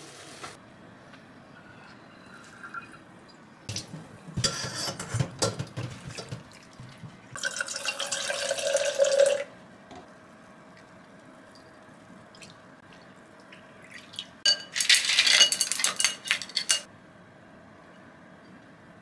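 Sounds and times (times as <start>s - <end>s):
water pouring into bowl: 7.4s - 9.5s.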